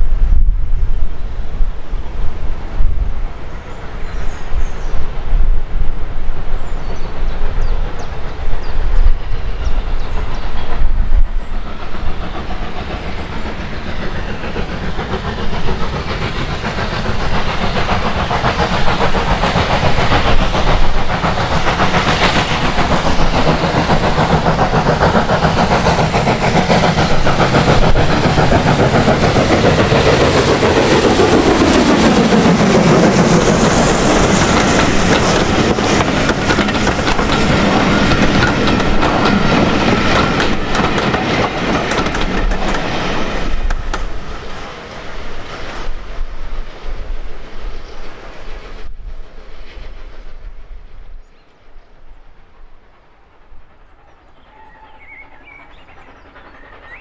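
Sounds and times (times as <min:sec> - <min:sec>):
wind buffeting microphone: 0:00.0 - 0:52.9
train wheels clickety-clack: 0:06.7 - 0:46.0, 0:53.3 - 0:57.0.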